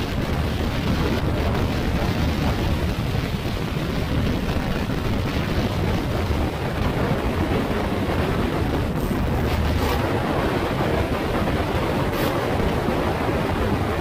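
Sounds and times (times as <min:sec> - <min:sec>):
wind rush on microphone: 0:00.0 - 0:14.0.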